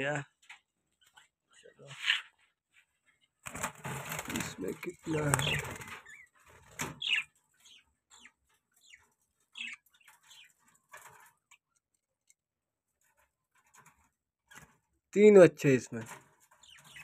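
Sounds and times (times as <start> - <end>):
budgerigars chirping: 4.6 - 10.6, 16.6 - 17.0.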